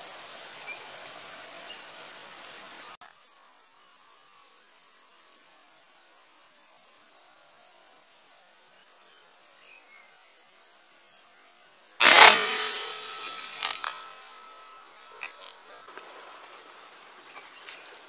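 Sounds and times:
air rifle shot: 12.0s - 15.8s
steady high buzz: 12.0s - 17.2s.

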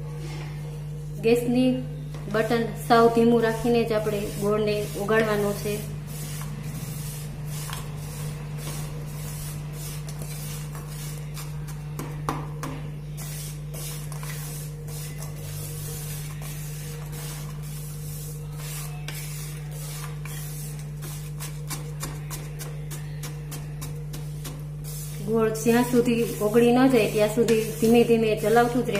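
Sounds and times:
wooden spatula scraping pan: 24.4s - 28.9s.

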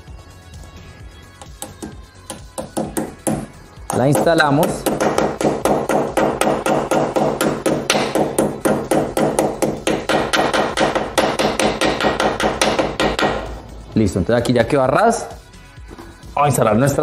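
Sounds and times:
hammer tapping on steel: 1.4s - 13.5s.

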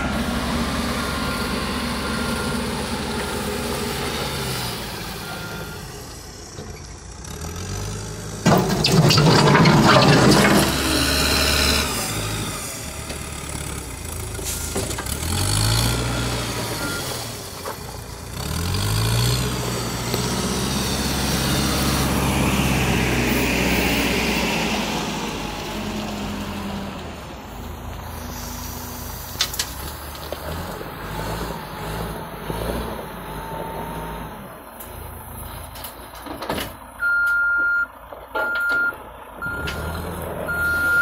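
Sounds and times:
diesel engine running: 0.0s - 41.0s
reversing alarm beeping: 5.0s - 6.0s, 16.1s - 17.2s, 37.0s - 39.9s, 40.5s - 41.0s
debris tipping into truck: 8.4s - 11.0s.

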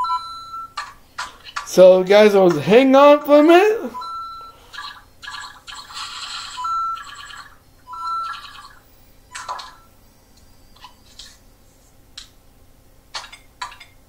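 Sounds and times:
electronic bleeps and chirps: 4.0s - 10.8s.

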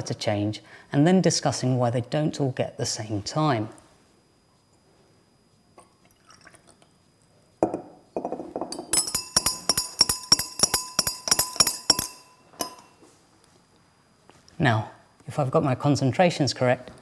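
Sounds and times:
liquid pouring into glass beaker: 5.8s - 6.9s
glass rods clinking against beakers: 7.6s - 13.0s.

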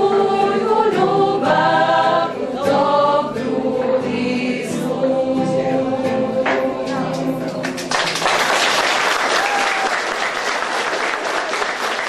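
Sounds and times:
women singing in unison: 0.0s - 7.6s
applause: 7.1s - 12.0s.

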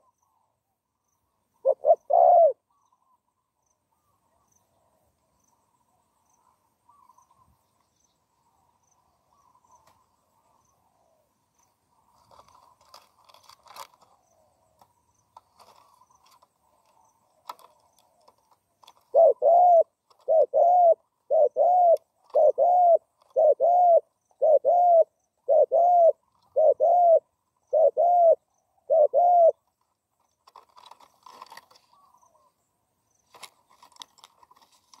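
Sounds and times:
dove cooing: 1.6s - 3.1s, 17.4s - 29.7s
faint chirps and clicks: 8.8s - 10.8s, 11.6s - 19.2s.

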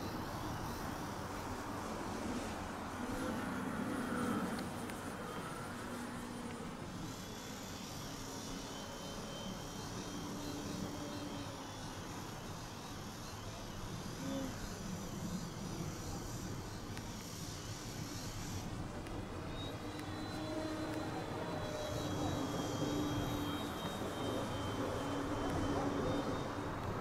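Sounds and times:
model plane motor droning: 0.0s - 27.0s.

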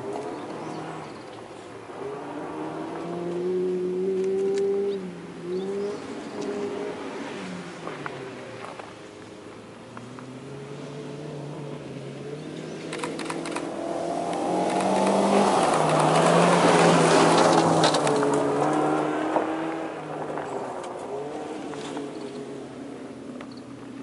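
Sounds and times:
gravel crackling under tyres: 0.0s - 24.0s
car engine driving past: 10.0s - 22.8s.

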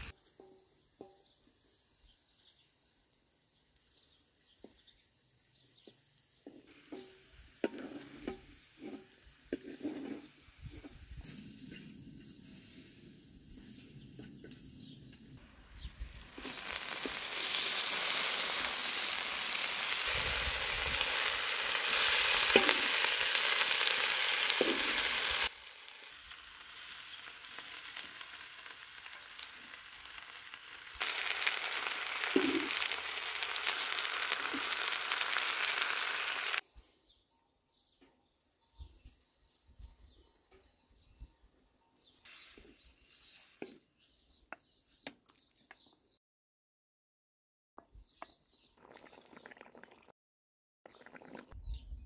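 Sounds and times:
spinach sizzling in a wok: 0.0s - 2.7s, 6.5s - 14.0s, 14.6s - 36.6s
wooden spatula stirring: 6.8s - 10.3s.

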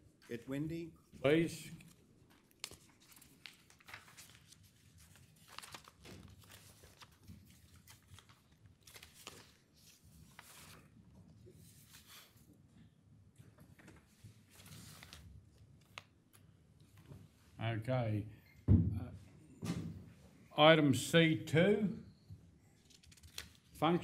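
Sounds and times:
faint paper rustling: 0.2s - 12.6s, 13.4s - 17.4s, 22.7s - 24.0s.

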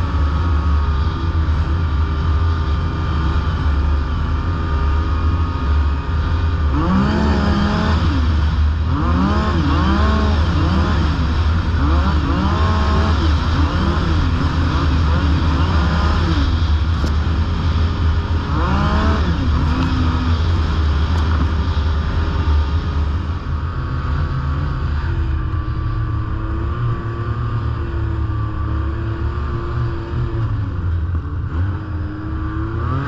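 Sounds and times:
low rumble: 0.0s - 33.0s
snowmobile engine running: 0.0s - 33.0s.

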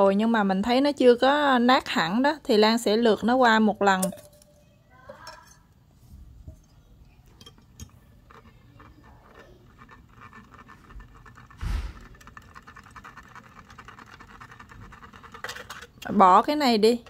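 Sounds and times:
whisk scraping metal strainer: 6.5s - 17.0s.

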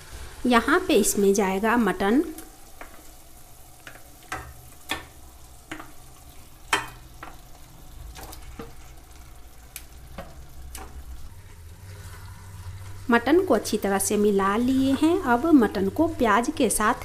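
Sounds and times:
meat frying with low sizzle: 0.0s - 17.0s
sharp crackles and pops: 2.3s - 11.3s.

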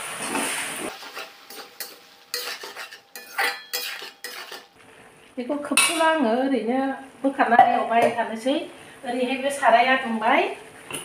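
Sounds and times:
vegetables sizzling: 0.0s - 6.5s
metal spatula scraping a pan: 0.3s - 4.8s.

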